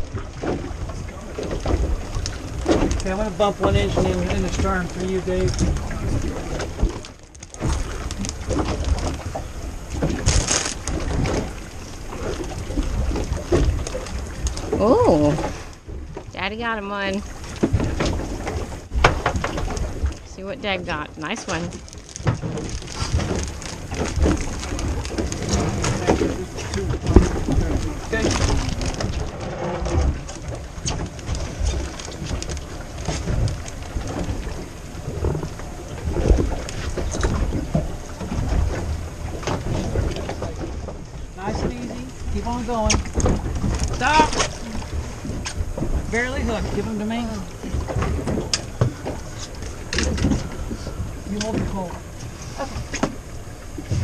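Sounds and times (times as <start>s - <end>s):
water sloshing against hull: 0.0s - 54.0s
crackle of small clicks: 6.6s - 9.4s, 21.5s - 26.1s.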